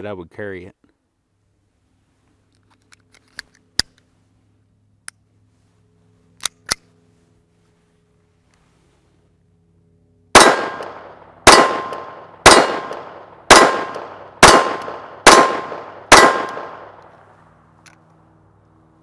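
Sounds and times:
pistol shots with echo: 10.3s - 17.0s.

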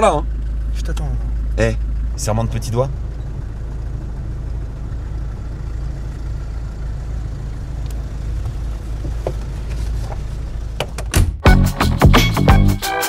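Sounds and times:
car engine idling: 0.0s - 12.7s
car door clicks: 7.8s - 11.4s.

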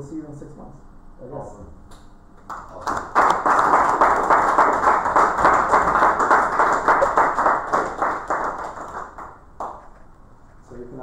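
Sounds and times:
small audience clapping: 2.4s - 10.1s.

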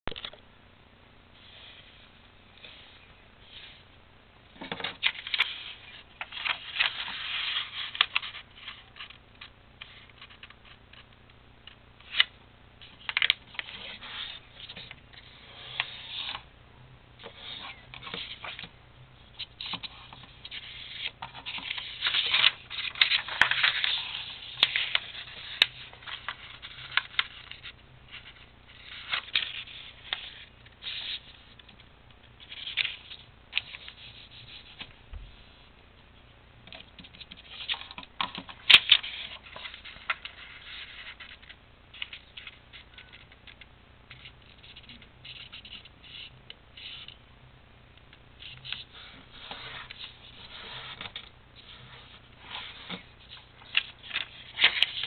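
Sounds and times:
paper rustling and folding: 4.6s - 11.1s, 19.4s - 31.8s, 37.0s - 47.1s, 48.4s - 55.0s.

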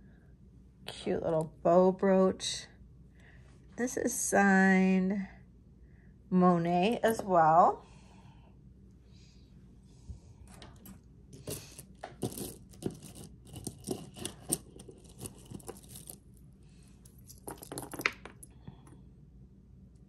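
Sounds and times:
metal jewelry clinking: 10.5s - 16.4s, 17.0s - 19.0s.

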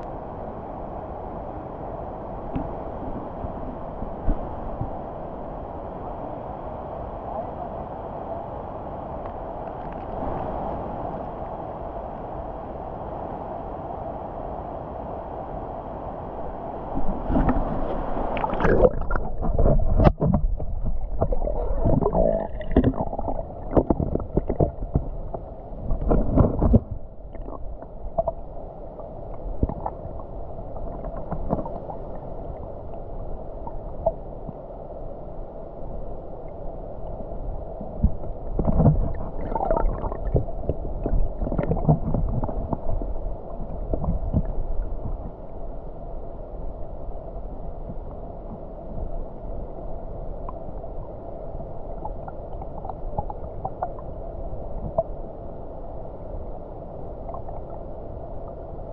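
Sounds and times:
underwater knocks and clicks: 2.5s - 2.8s, 17.0s - 28.4s, 29.6s - 30.2s, 30.8s - 32.0s, 38.0s - 45.3s, 54.8s - 55.1s
underwater gurgling and bubbling: 17.0s - 34.6s, 37.1s - 45.6s, 51.8s - 55.2s, 57.1s - 58.5s.

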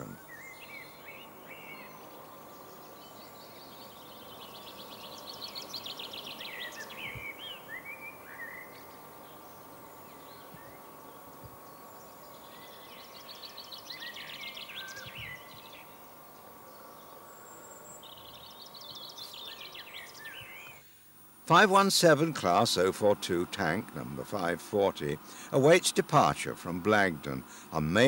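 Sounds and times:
songbird chirping: 0.0s - 20.9s
faint steady hum: 0.0s - 28.0s.

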